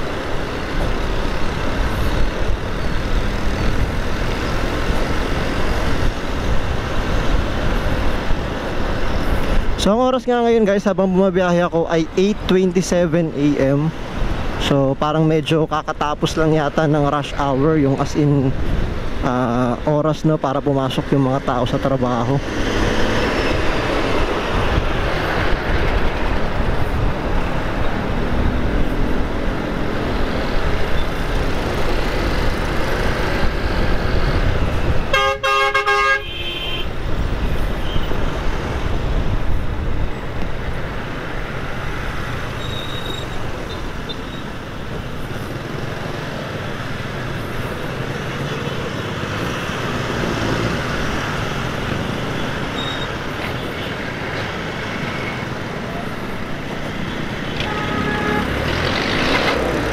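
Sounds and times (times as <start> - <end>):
motorcycle riding wind and engine: 0.0 - 59.9
vehicle horn honking: 35.1 - 37.0, 57.6 - 58.6.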